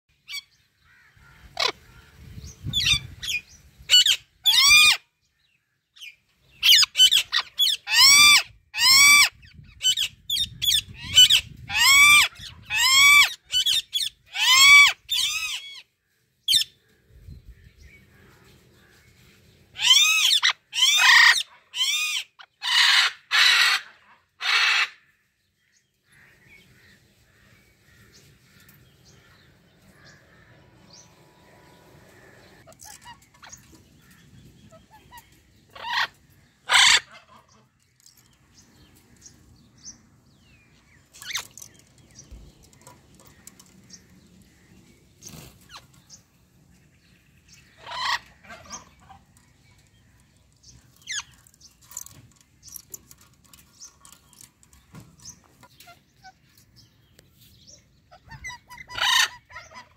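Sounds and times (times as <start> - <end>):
parrot squawking: 6.6 - 15.7, 19.8 - 25.0, 34.7 - 37.5, 47.8 - 49.2, 58.1 - 59.9.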